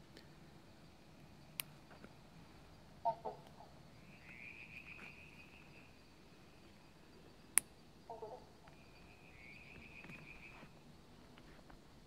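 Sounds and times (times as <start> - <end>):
croaky animal double call: 3.0 - 3.7, 8.1 - 8.7.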